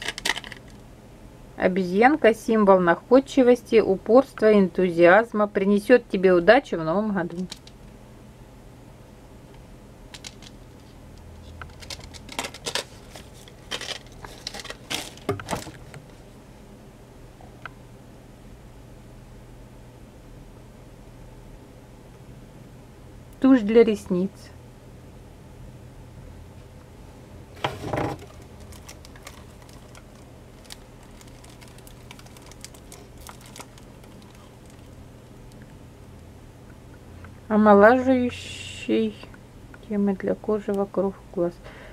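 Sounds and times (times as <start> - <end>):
bubble wrap crinkling: 0.0 - 0.8, 10.2 - 16.2, 27.8 - 35.7
plastic bag rustling: 0.0 - 0.8, 10.2 - 16.3, 27.6 - 35.6
low steady hum: 0.0 - 41.9.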